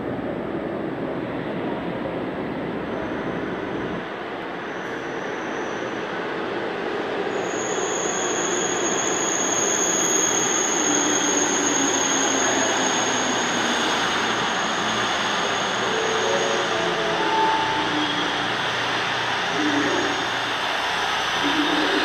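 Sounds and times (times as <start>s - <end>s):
subway train wheels rumbling on rail: 0.0s - 22.0s
high-pitched brake squeal: 4.6s - 6.1s, 7.3s - 20.6s.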